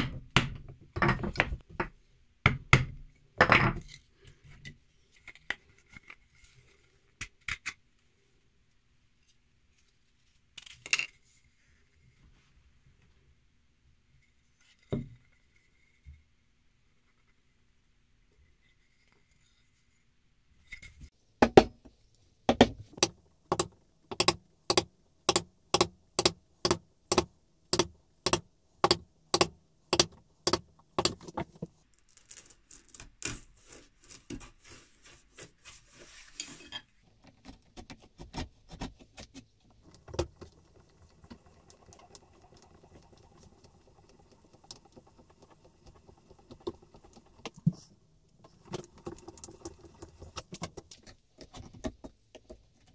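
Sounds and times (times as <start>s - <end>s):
hand tool knocking on wood: 22.5s - 31.2s.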